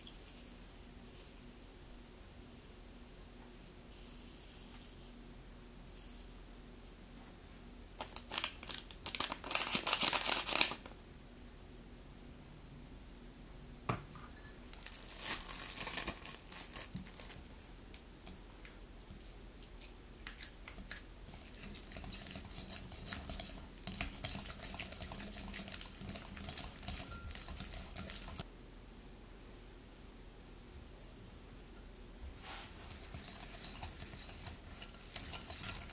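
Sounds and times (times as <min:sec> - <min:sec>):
packaging crinkling: 0:08.0 - 0:10.9, 0:14.8 - 0:17.4.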